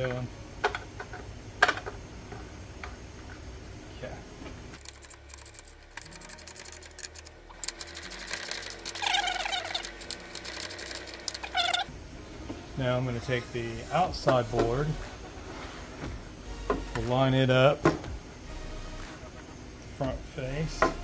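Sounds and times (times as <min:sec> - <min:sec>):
clamp ratchets clicking: 0:04.8 - 0:11.9.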